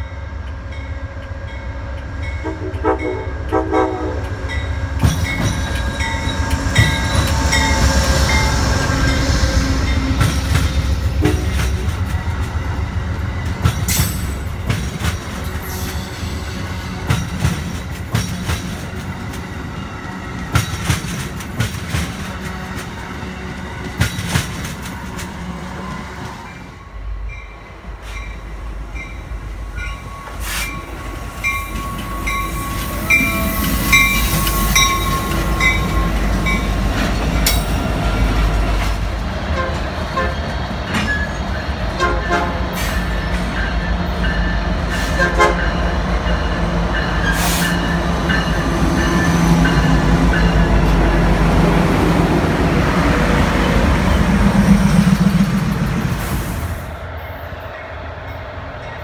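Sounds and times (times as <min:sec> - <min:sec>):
freight train passing: 0:00.0 - 0:59.0
train horn: 0:02.4 - 0:04.5, 0:11.1 - 0:11.8, 0:39.5 - 0:40.4, 0:41.9 - 0:42.8, 0:45.1 - 0:45.8.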